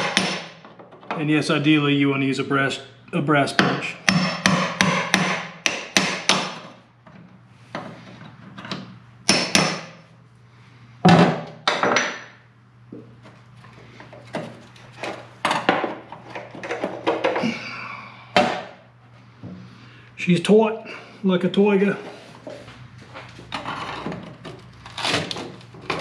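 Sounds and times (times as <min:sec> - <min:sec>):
hammer striking metal punch: 0:00.0 - 0:00.6, 0:03.6 - 0:06.6, 0:09.3 - 0:10.0.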